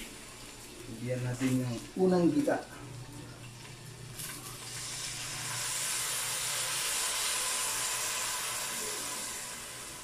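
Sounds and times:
liquid hissing in hot pan: 0:04.2 - 0:10.0.

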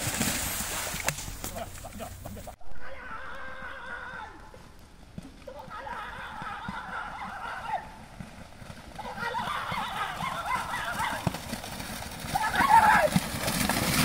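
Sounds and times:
wavering high-pitched shouts: 0:09.0 - 0:11.2, 0:12.3 - 0:13.1.

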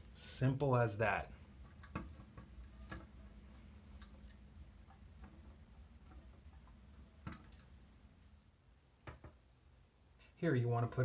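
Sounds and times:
faint ticks of toilet parts: 0:01.5 - 0:08.3.

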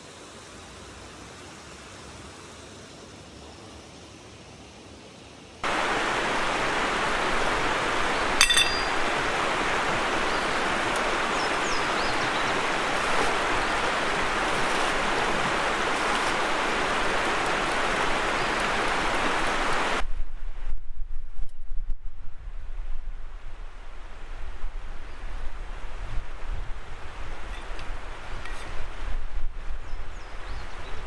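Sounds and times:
river rushing over stones: 0:05.6 - 0:20.0
sharp clink: 0:08.4 - 0:09.1.

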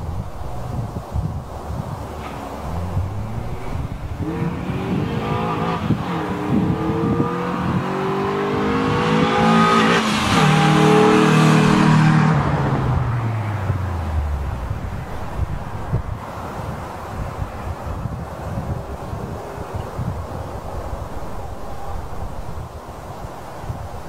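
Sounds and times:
car engine accelerating past: 0:02.1 - 0:16.5.

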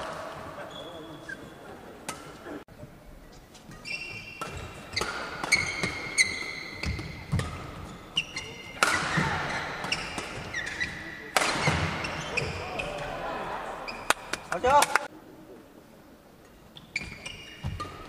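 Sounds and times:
shoes squeaking on floor: 0:00.6 - 0:01.7, 0:03.3 - 0:13.0, 0:13.9 - 0:14.4, 0:16.8 - 0:18.0
rackets striking shuttlecock: 0:03.7 - 0:13.0.

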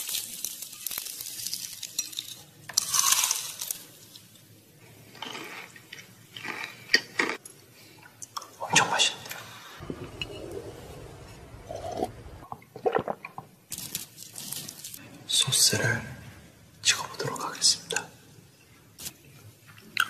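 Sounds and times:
fried chicken crackling: 0:00.0 - 0:04.4, 0:13.0 - 0:15.0.

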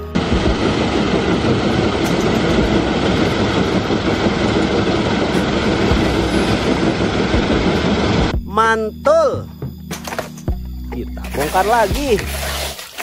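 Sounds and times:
engine clatter: 0:00.0 - 0:08.4
heavy vehicle engine rumble: 0:00.0 - 0:08.4.

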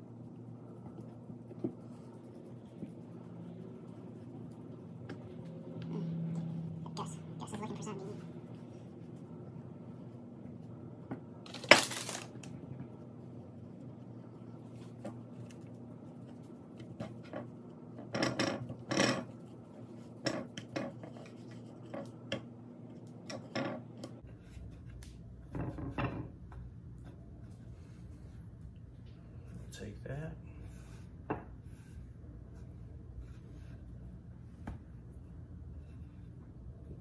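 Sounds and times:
faint low hum: 0:00.0 - 0:11.5
knocks and scrapes on plates: 0:16.9 - 0:19.4, 0:20.1 - 0:22.5, 0:25.4 - 0:26.4.

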